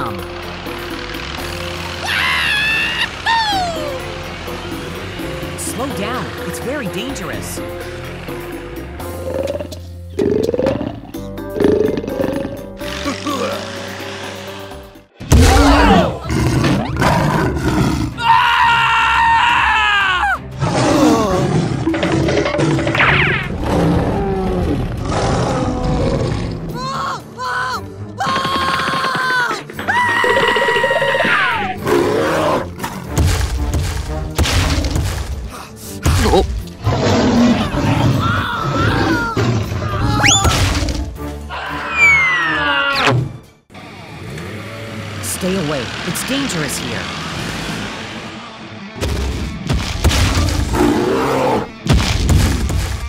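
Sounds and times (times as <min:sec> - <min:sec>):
background music: 0:00.0 - 0:53.0
dinosaur roars: 0:09.0 - 0:14.6, 0:15.3 - 0:19.4, 0:20.5 - 0:26.8, 0:30.2 - 0:33.1, 0:36.3 - 0:43.1, 0:50.2 - 0:51.8.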